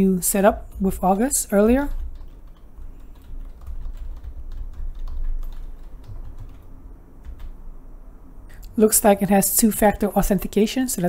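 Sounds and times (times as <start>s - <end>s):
keyboard typing clicks: 1.7s - 6.6s.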